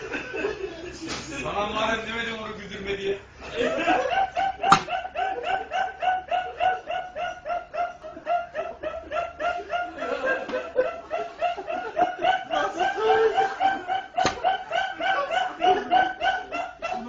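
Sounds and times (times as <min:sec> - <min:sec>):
man laughing uncontrollably: 0:03.5 - 0:17.0.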